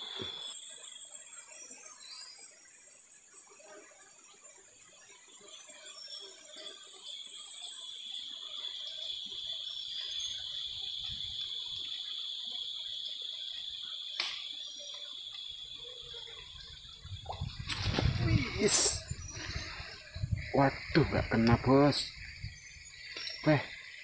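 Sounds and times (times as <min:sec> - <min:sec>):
insect chorus drone: 0:00.0 - 0:24.0
sharp click: 0:14.2 - 0:14.5.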